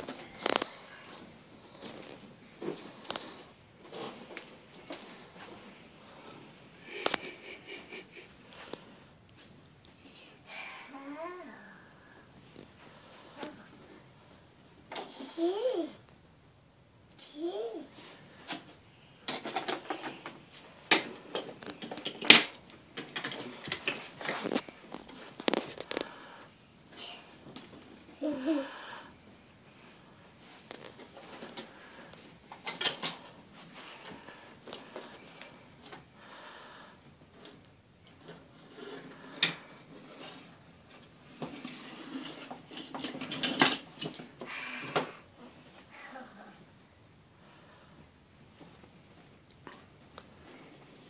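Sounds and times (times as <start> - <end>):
toy trains clattering on wooden track: 19.3 - 25.8, 37.4 - 44.3.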